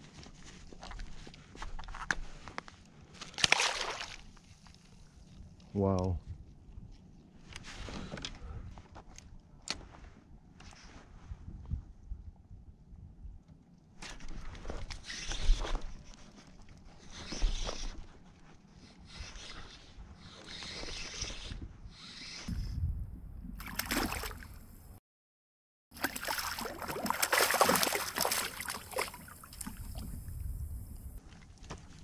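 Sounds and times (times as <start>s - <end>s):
water splashing: 3.4s - 4.3s, 23.6s - 24.6s, 26.0s - 30.2s
water lapping against kayak hull: 26.0s - 30.4s.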